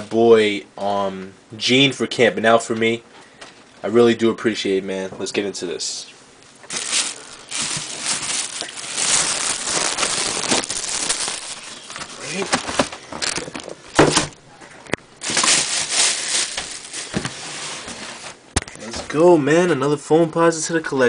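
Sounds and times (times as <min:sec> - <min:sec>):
plastic bag rustling and crinkling: 0:06.6 - 0:14.0, 0:15.2 - 0:18.5.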